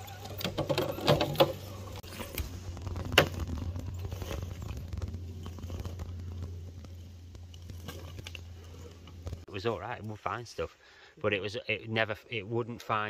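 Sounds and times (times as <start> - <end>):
tyres clattering on stones: 0.0 - 9.5.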